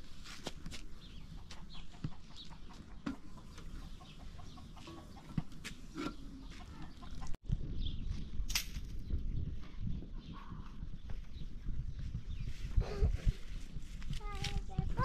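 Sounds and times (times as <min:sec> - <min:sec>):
chickens clucking: 0:01.2 - 0:07.4.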